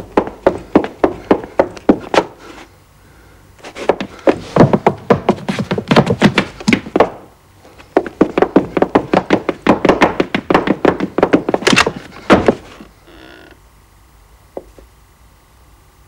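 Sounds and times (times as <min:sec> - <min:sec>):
rapid hollow knocks: 0:03.9 - 0:07.2, 0:08.0 - 0:12.7.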